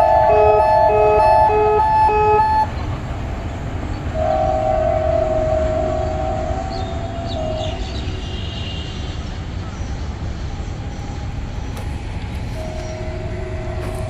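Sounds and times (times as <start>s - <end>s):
level crossing alarm beeping: 0.0s - 2.8s, 11.1s - 14.0s
locomotive horn blast: 0.0s - 2.8s, 4.1s - 9.3s, 12.5s - 14.0s.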